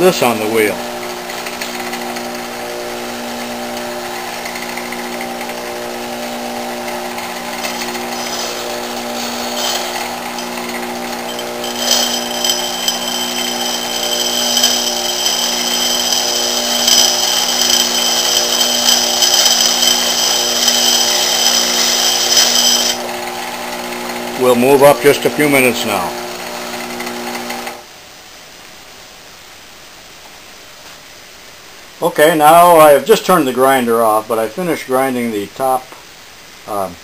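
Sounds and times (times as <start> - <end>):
bench grinder humming: 0.0 - 27.9
high-pitched grinding whine: 0.0 - 27.9.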